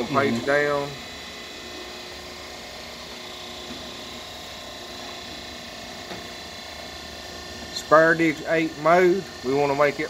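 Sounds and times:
machinery humming: 0.0s - 10.0s.

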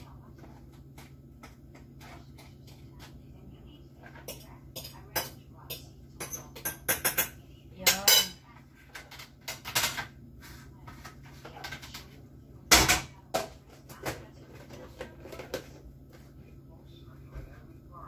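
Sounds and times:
dishes and cutlery clattering: 4.0s - 10.1s, 10.9s - 15.8s.

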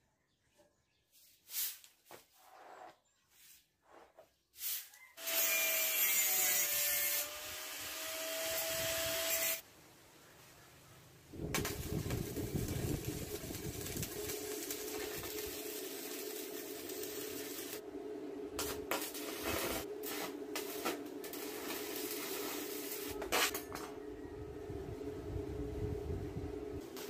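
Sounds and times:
arc welder crackling and hissing: 4.6s - 9.6s, 11.4s - 17.8s, 18.5s - 23.8s, 26.8s - 27.0s
steady hum: 11.4s - 27.0s.

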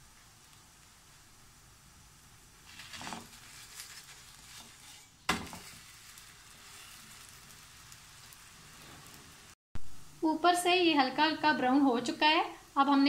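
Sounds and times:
faint sizzling: 0.0s - 13.0s
crepe slapping onto pan: 2.6s - 8.4s
spatula scraping a frying pan: 2.6s - 9.4s.

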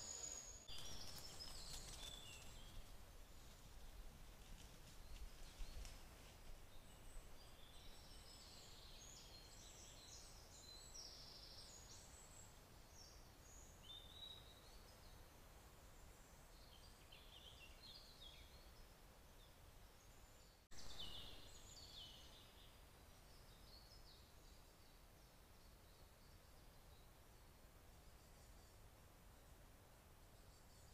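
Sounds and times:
low background hiss: 0.0s - 30.9s
songbirds chirping: 0.0s - 30.9s.

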